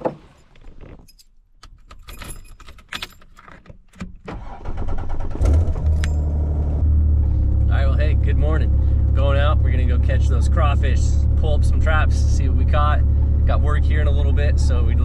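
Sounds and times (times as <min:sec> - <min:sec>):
engine humming: 0:04.4 - 0:15.0.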